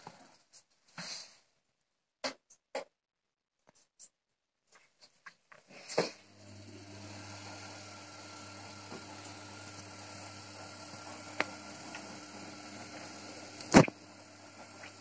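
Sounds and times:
washing machine motor hum: 0:06.0 - 0:15.0.

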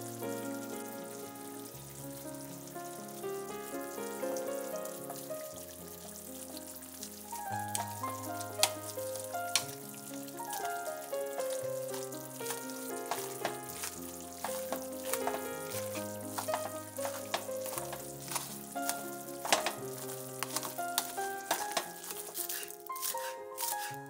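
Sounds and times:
soft background music: 0:00.0 - 0:24.0
potato masher squelching: 0:12.5 - 0:24.0.

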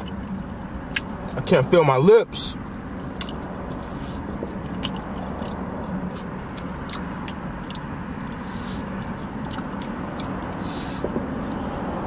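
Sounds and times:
wet chewing and biting: 0:00.0 - 0:01.4, 0:03.0 - 0:11.2.

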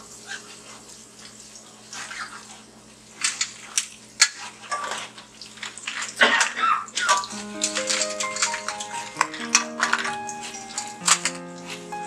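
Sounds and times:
oil sizzling: 0:07.2 - 0:12.0.

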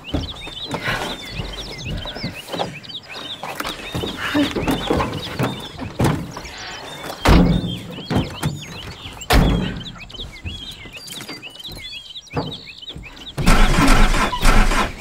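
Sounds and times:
small birds chirping: 0:00.0 - 0:15.0
heavy thuds: 0:07.2 - 0:10.6
loud rough noise: 0:13.4 - 0:15.0.

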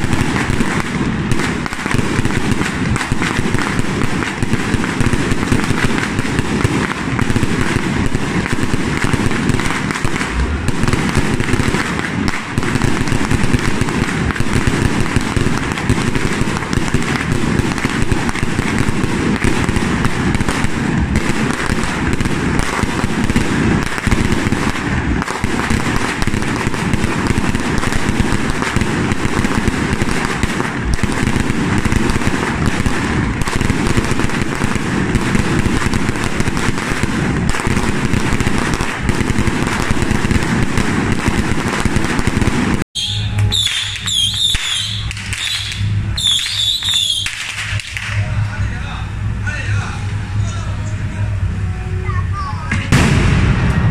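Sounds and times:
firecrackers crackling: 0:00.0 - 0:53.9.

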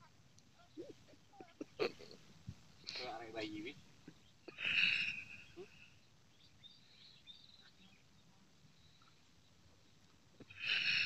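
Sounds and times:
faint high chirps: 0:04.0 - 0:10.9.

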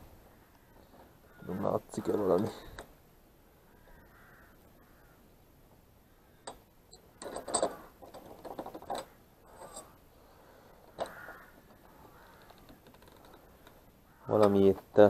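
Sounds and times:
metal door handle clicking and rattling: 0:06.4 - 0:09.9.

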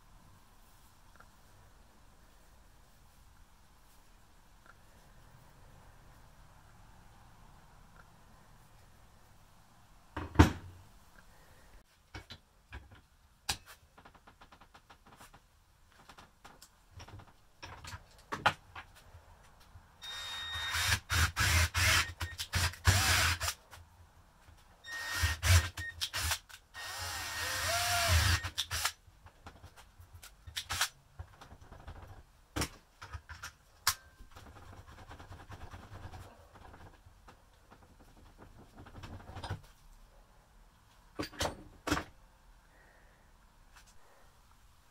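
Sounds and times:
cordless drill boring: 0:20.0 - 0:23.6, 0:24.9 - 0:28.9.

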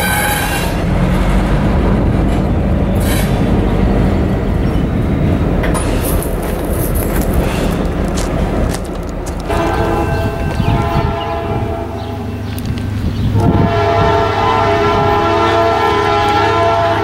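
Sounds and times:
diesel engine drone: 0:00.0 - 0:16.9
train wheels rumbling on rails: 0:00.0 - 0:17.0.

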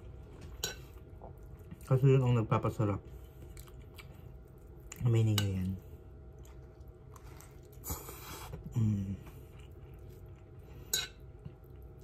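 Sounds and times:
person chewing: 0:03.4 - 0:05.1, 0:06.3 - 0:12.0.

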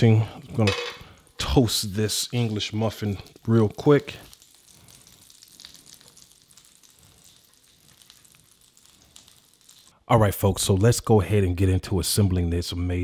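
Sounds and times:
butter and oil sizzling in pan: 0:02.2 - 0:10.0.

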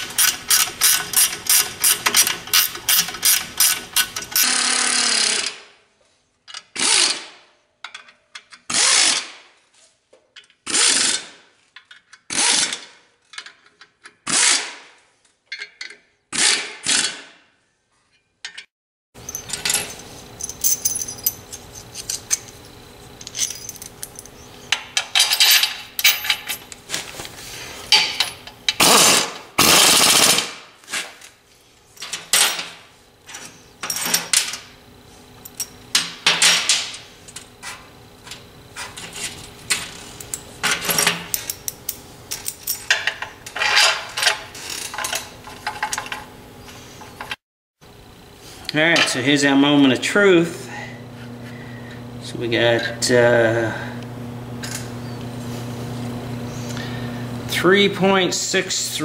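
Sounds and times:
metal parts and tools clanking: 0:00.0 - 0:04.4, 0:13.2 - 0:14.2, 0:15.4 - 0:16.1, 0:18.1 - 0:27.1, 0:27.9 - 0:28.9, 0:31.9 - 0:34.6, 0:35.4 - 0:46.3
power driver running bolts: 0:00.0 - 0:04.6, 0:28.0 - 0:30.5.

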